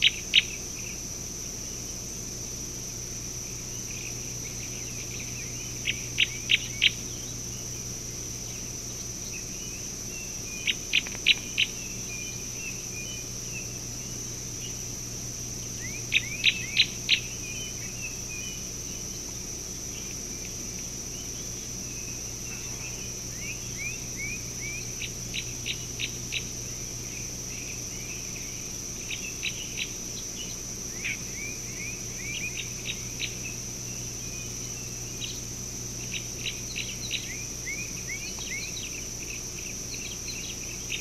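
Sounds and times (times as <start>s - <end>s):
high insect chorus: 0.0s - 41.0s.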